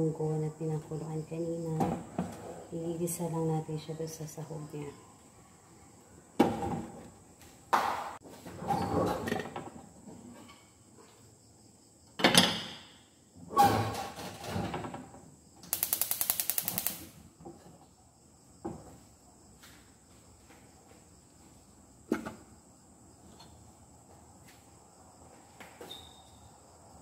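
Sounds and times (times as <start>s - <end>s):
stove igniter clicking rapidly: 15.6s - 17.1s.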